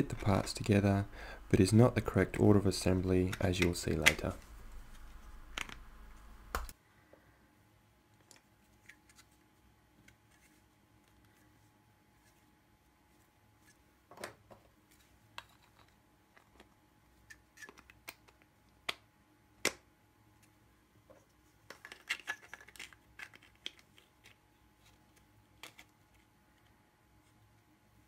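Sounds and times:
plastic parts clicking: 21.7 - 24.4.

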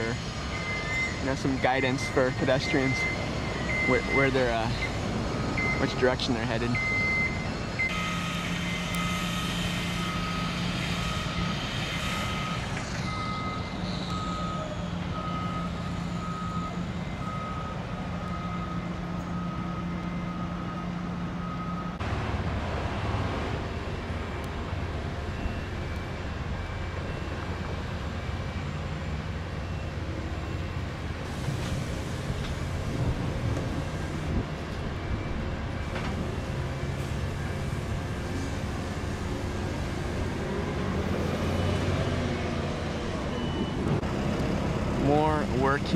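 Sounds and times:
faint high reversing beep: 0.0 - 22.0, 25.2 - 28.8, 29.5 - 30.6, 41.0 - 42.6, 43.2 - 43.8
reversing alarm beeping: 0.0 - 22.0, 23.8 - 44.0
vehicle engine drone: 0.0 - 45.9.

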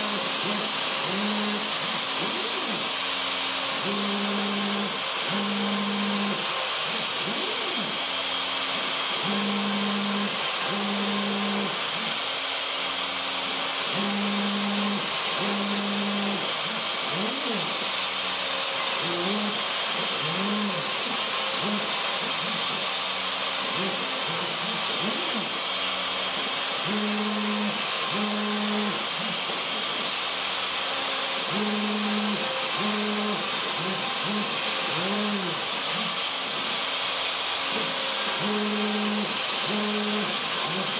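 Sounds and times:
stepper motor tones: 0.0 - 8.4, 9.0 - 18.2, 26.8 - 29.9, 37.8 - 40.9
router whining: 0.0 - 40.9.

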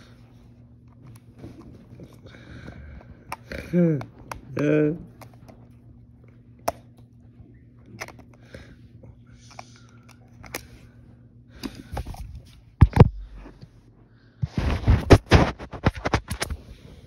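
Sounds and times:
low steady hum: 0.0 - 17.0
phone handling clicks and rustles: 7.8 - 8.5.

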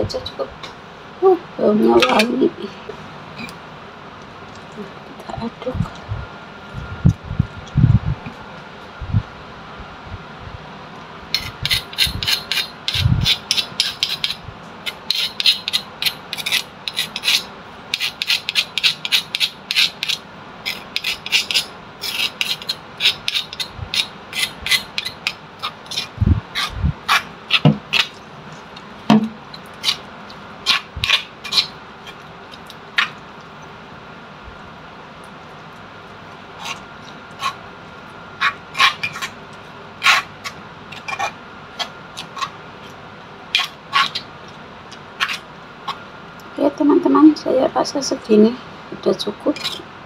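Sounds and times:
pestle and spoon rasping on stone: 11.4 - 33.2, 36.1 - 46.0.

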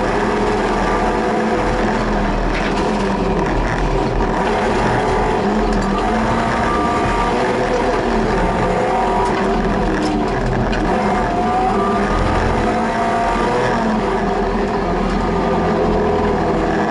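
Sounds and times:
car engine revving under load: 0.0 - 16.9.

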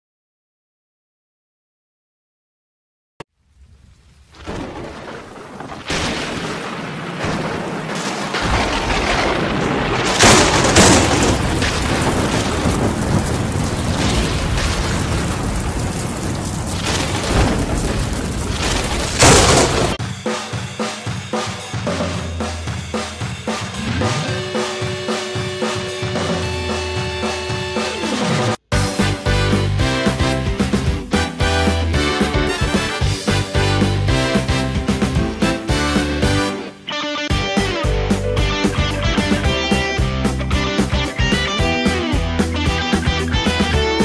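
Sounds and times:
music with drum-kit beat: 20.0 - 36.6, 37.3 - 44.0.

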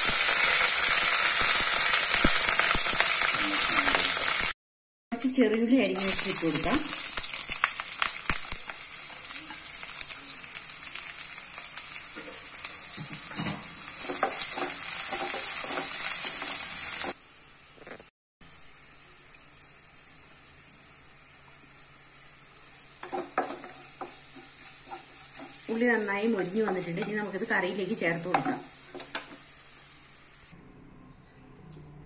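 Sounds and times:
shallots sizzling in oil: 0.0 - 4.6, 5.2 - 30.5
wooden spatula scraping pan: 23.0 - 25.7.

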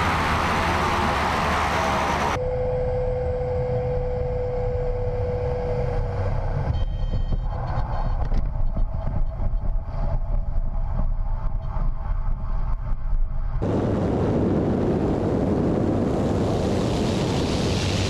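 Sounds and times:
propeller plane engine: 0.0 - 6.8, 13.3 - 18.0
steady whine: 0.0 - 18.0.

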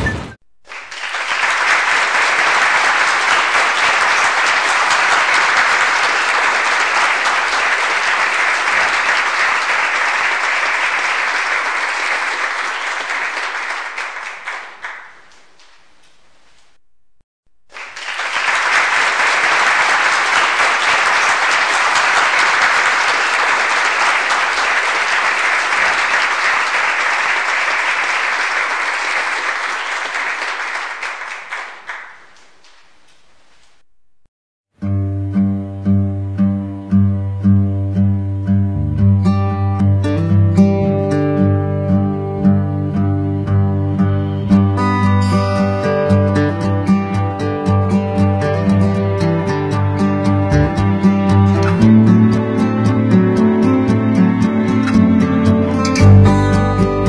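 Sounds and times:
crowd applauding: 0.6 - 15.9, 17.7 - 33.2, 47.4 - 57.0.

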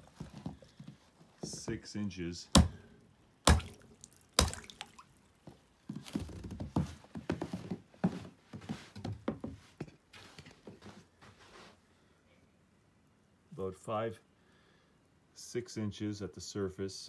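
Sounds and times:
ice chunks crunching and knocking: 4.4 - 4.9.

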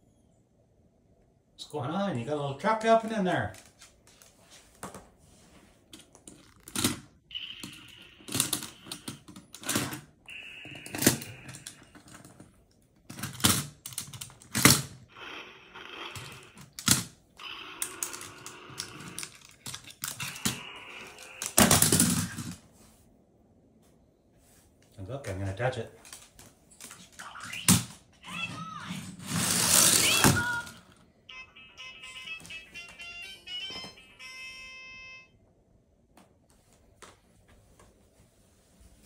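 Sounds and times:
toy wheels whirring: 15.1 - 22.6, 28.7 - 30.9.

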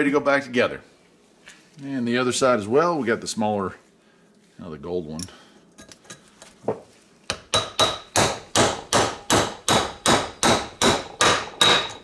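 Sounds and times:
hammer striking metal: 7.3 - 12.0.

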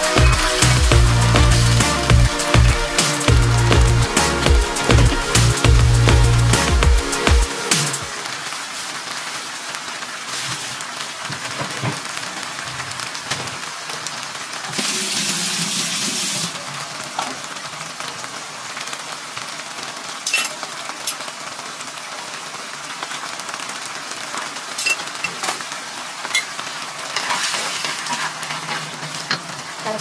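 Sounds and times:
fish sizzling in a frying pan: 8.1 - 22.1, 22.9 - 30.0
wooden spatula stirring pan: 27.1 - 29.4.

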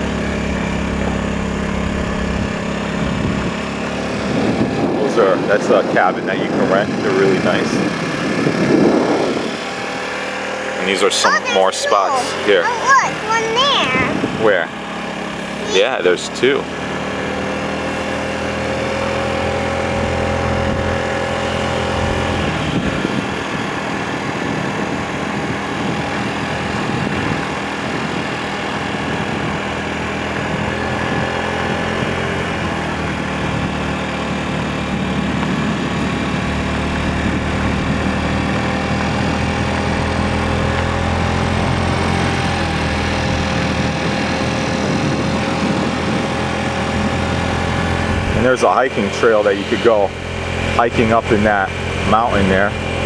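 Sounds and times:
vehicle engine humming: 0.0 - 53.0.

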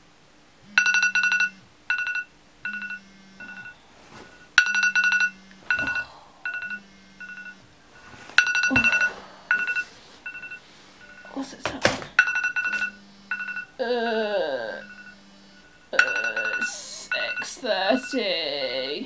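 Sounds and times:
phone alarm ringtone beeping: 0.8 - 11.4, 12.2 - 13.8, 14.6 - 18.8.

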